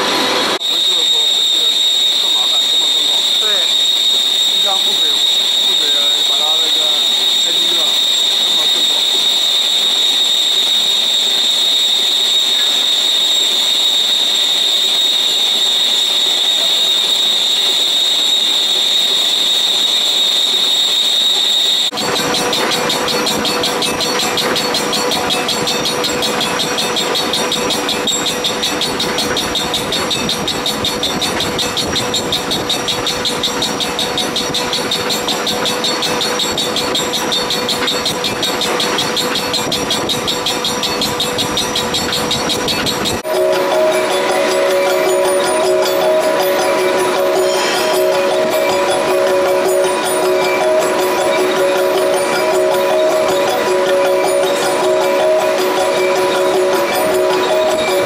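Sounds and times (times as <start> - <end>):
lathe cutting whine: 0.0 - 58.0
fast pulsing chatter: 0.8 - 9.4, 22.0 - 58.0.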